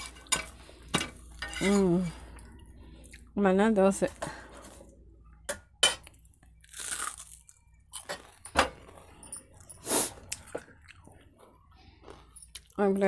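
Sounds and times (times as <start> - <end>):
crisp fried food crunching: 6.4 - 9.2.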